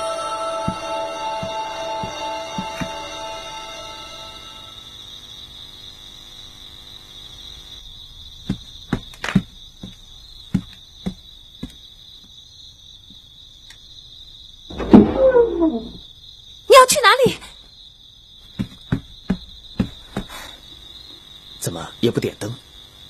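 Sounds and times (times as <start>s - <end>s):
crickets chirping: 0.0s - 23.0s
footsteps on wooden floorboards: 1.4s - 3.0s, 18.5s - 20.4s.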